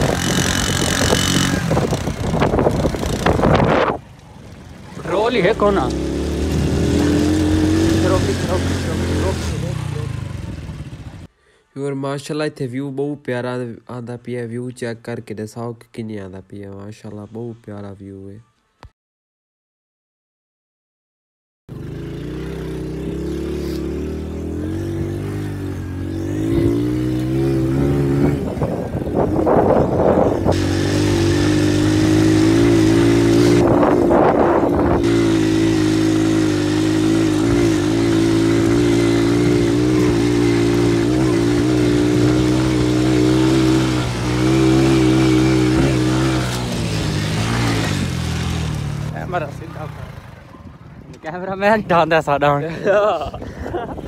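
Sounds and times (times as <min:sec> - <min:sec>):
motorcycle engine running: 0:00.0 - 0:11.3, 0:21.7 - 0:51.4.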